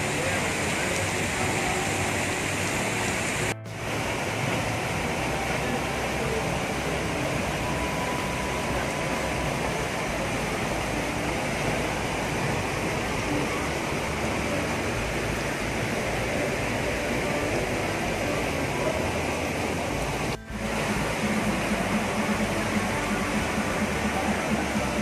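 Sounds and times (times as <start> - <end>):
running water rushing: 0.0 - 25.0.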